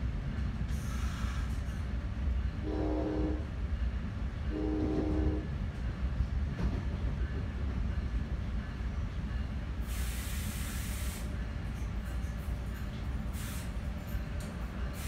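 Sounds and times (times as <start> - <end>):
train rumbling on track: 0.0 - 15.0
train air horn blasts: 2.6 - 3.5, 4.5 - 5.5.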